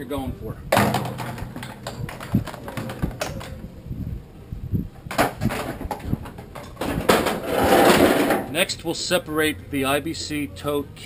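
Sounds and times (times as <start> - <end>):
metal frame knocking and rattling: 0.7 - 3.7, 5.0 - 8.5.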